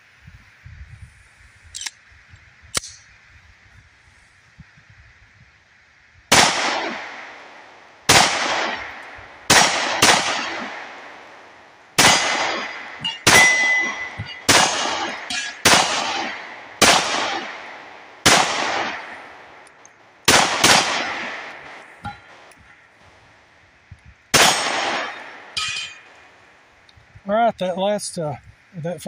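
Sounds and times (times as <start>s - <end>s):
pistol shots: 6.3s - 22.6s, 24.3s - 26.3s
steel target plate ringing: 12.0s - 17.9s, 21.2s - 22.5s, 24.4s - 26.4s.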